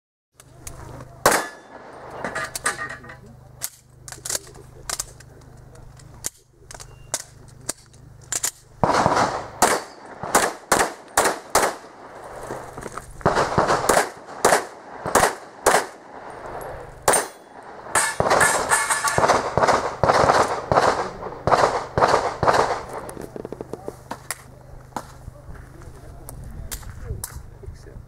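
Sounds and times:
pistol shots: 0:01.2 - 0:02.6, 0:08.3 - 0:12.6, 0:13.2 - 0:23.1.

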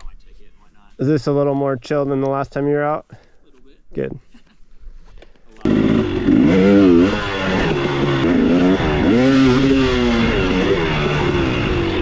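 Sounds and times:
dirt bike engine revving: 0:05.6 - 0:12.0.

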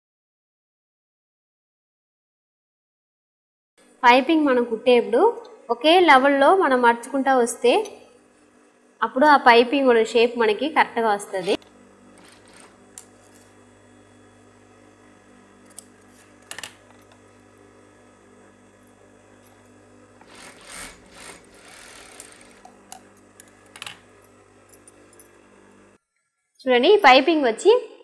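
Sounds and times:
sewing machine motor humming: 0:11.1 - 0:26.0.

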